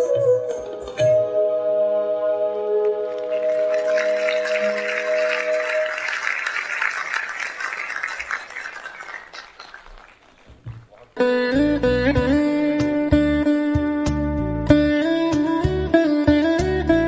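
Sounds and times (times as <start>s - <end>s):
audience applause: 3.0s - 11.2s.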